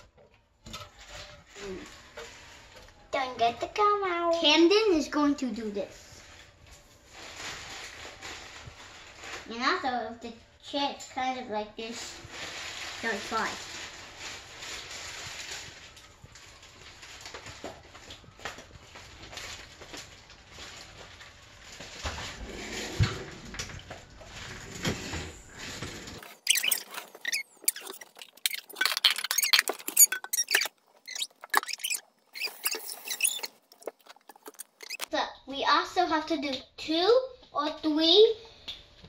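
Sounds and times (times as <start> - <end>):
sharp irregular clicks and scratches: 25.8 - 35.1.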